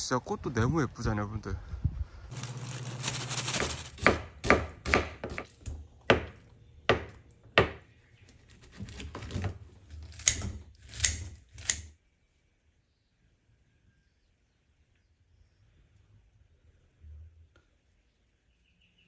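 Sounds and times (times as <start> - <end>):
knife chopping on cutting board: 3.6 - 5.5, 6.1 - 7.8.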